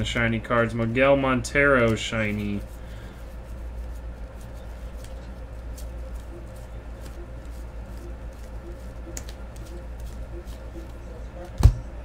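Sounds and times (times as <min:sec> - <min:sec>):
steady low hum: 0:00.0 - 0:12.0
cards flicking: 0:03.8 - 0:11.8.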